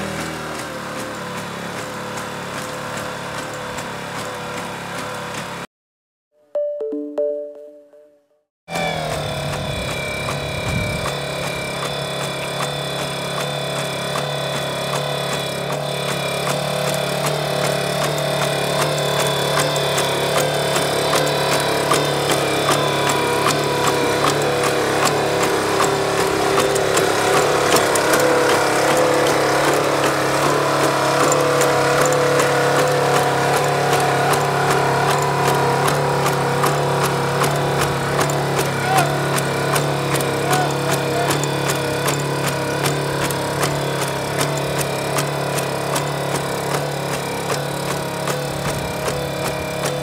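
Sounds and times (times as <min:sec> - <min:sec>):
robot engine droning: 0:08.7 - 0:13.0.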